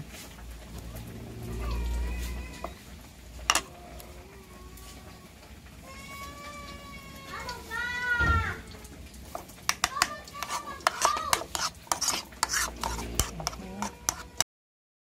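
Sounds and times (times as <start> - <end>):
spoon clinking against bowl: 3.5 - 3.7
spoon scraping squeakily: 3.5 - 3.8, 9.8 - 14.4.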